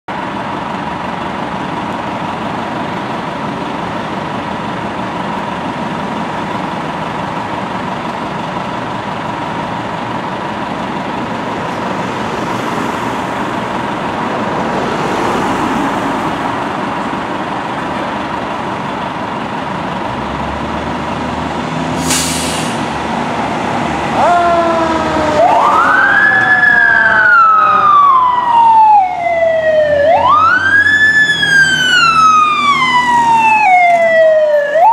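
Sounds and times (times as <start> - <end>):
short hiss: 22.0 - 22.9
fire truck siren wailing: 22.0 - 34.9.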